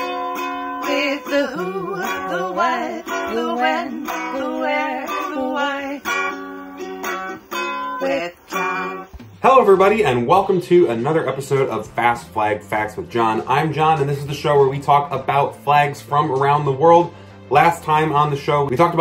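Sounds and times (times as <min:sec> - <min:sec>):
person singing: 0:00.0 - 0:09.4
strummed string instrument: 0:00.0 - 0:19.0.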